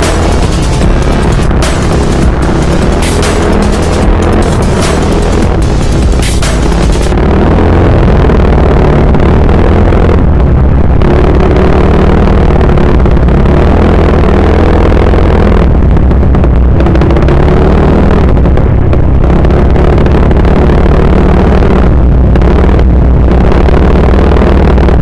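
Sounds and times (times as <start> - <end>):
scooter engine running: 0.0 - 9.7.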